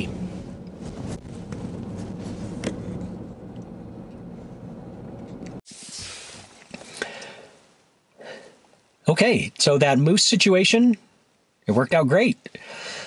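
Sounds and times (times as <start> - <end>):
engine and road rumble: 0.0 - 8.0
quiet hiss: 0.0 - 13.0.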